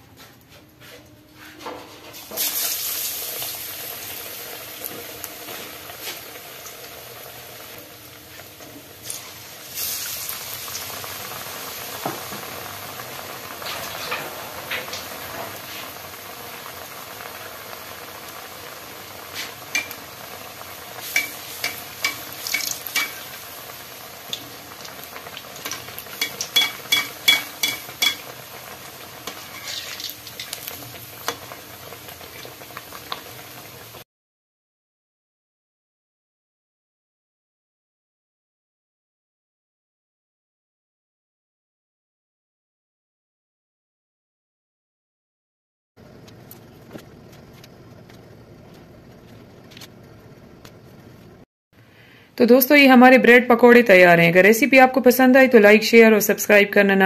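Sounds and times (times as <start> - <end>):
bread deep-frying in oil: 1.9 - 34.0
spoon clicking against pan: 26.2 - 28.2.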